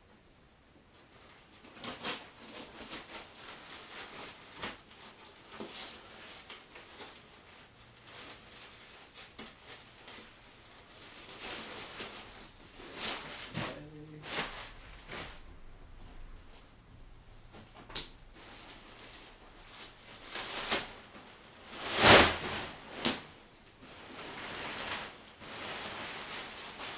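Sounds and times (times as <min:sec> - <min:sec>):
nylon tent rustling: 0:01.8 - 0:16.5, 0:17.5 - 0:26.9.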